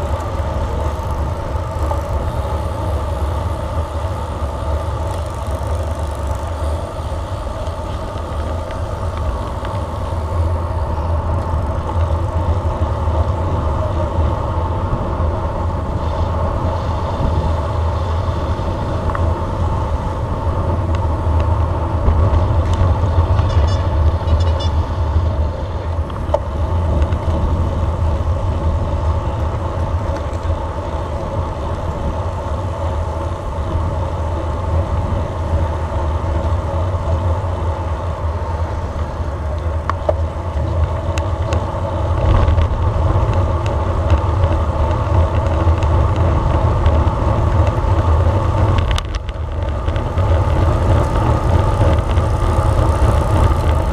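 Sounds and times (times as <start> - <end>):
road noise: 0.0 - 53.9
wind rumbling on microphone: 0.0 - 53.9.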